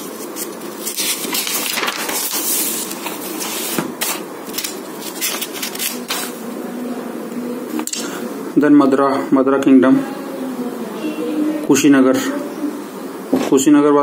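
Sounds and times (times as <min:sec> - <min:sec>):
book pages rustling: 0:00.0 - 0:06.3.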